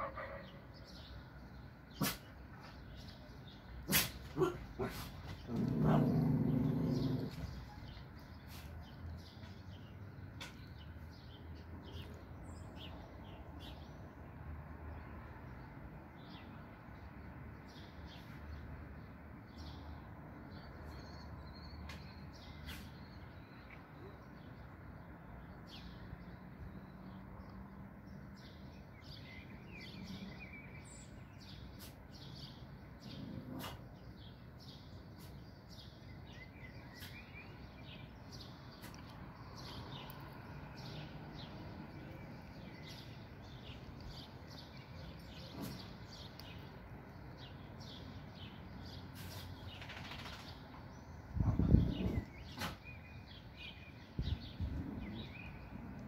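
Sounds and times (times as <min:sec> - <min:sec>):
dog barking: 0:00.0 - 0:00.6, 0:03.9 - 0:05.1.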